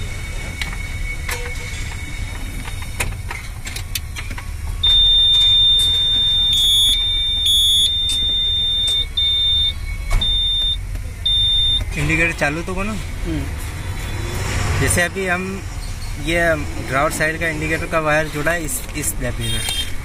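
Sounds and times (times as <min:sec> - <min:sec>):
electronic warning buzzer: 0:04.8 - 0:11.9.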